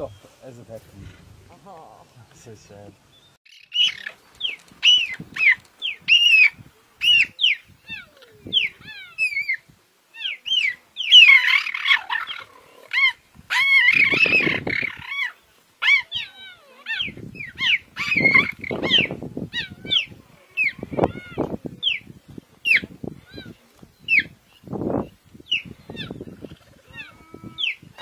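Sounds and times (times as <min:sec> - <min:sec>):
cheetahs chirping: 0:02.4 - 0:28.0
cheetahs growling and snarling: 0:11.2 - 0:15.3, 0:25.8 - 0:28.0.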